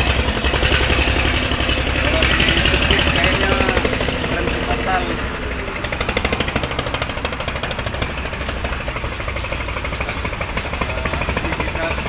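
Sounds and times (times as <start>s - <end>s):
motorboat diesel engine knocking: 0.0s - 12.0s.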